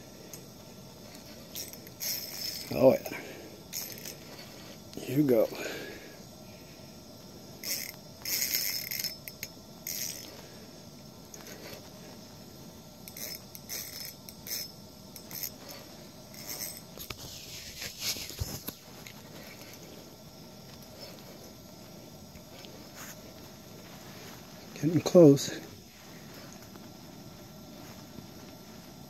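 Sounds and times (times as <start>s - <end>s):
fishing reel clicking whir: 1.1s - 3.1s, 3.7s - 4.8s, 7.6s - 10.4s, 13.0s - 17.2s.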